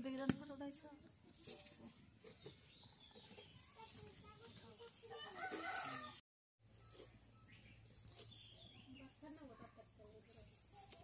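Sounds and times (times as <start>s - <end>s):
rooster crowing: 5.3s - 6.2s.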